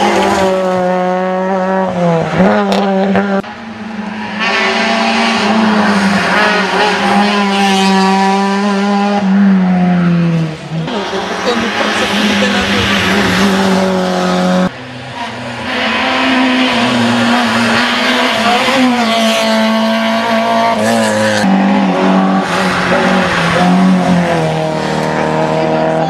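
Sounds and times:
rally car engines revving: 0:00.0 - 0:26.0.

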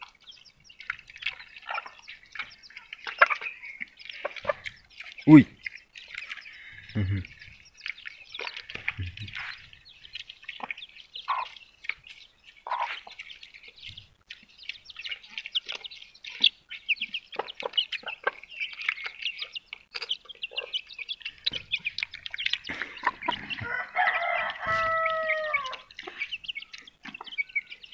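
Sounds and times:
chicks peeping: 0:00.0 - 0:27.9
rooster crowing: 0:23.5 - 0:25.9.

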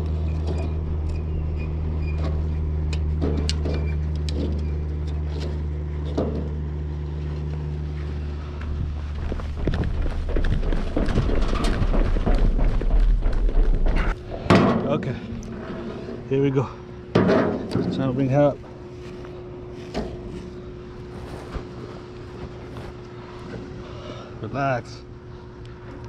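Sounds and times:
rough rumbling noise: 0:00.0 - 0:24.1
low mechanical hum: 0:00.0 - 0:26.0.

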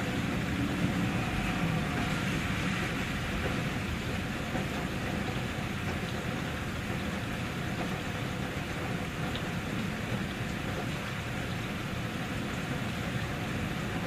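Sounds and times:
steady rain falling: 0:00.0 - 0:14.0.

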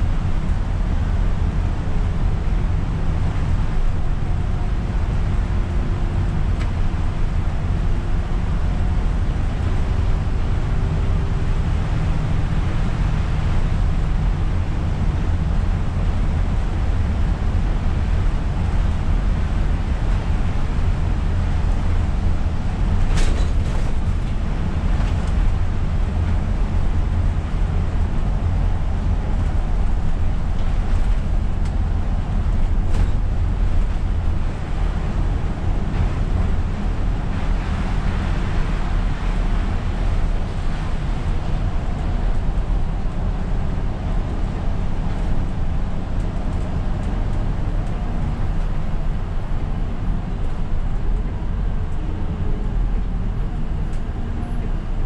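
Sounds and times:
bus engine and road rumble: 0:00.0 - 0:55.0
rain and wet tyres hiss: 0:09.4 - 0:51.9.

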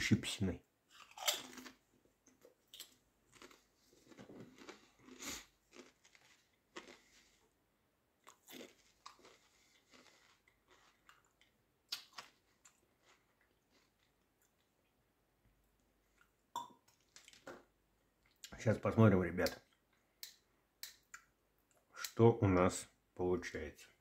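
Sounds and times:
person chewing crisps: 0:00.9 - 0:07.6, 0:08.2 - 0:15.0, 0:16.0 - 0:17.5.

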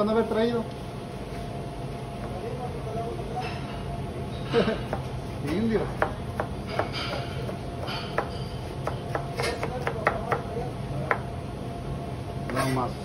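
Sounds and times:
knife chopping on cutting board: 0:04.9 - 0:11.3.

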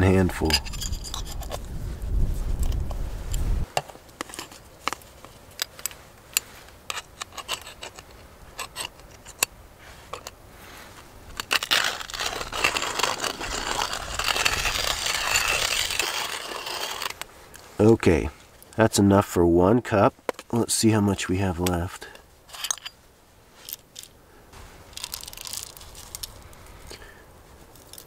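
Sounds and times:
coffee grinder scraping: 0:00.4 - 0:01.6, 0:11.4 - 0:17.2, 0:25.0 - 0:27.0
coffee beans clicking and rattling: 0:24.9 - 0:27.0.

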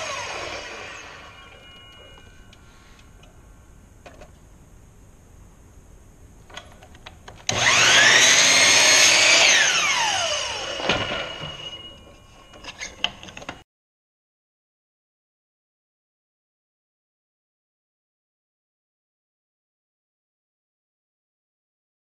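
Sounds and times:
miter saw cutting wood: 0:00.0 - 0:01.8, 0:07.5 - 0:11.7.

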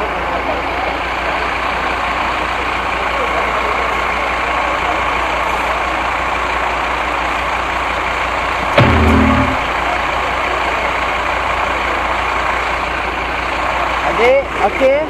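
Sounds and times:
short low-pitched sound: 0:08.8 - 0:09.8.

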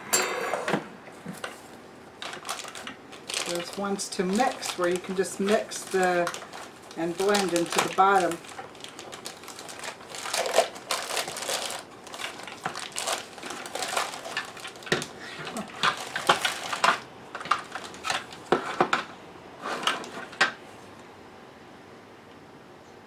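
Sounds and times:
plastic bag crinkling: 0:01.5 - 0:18.6.

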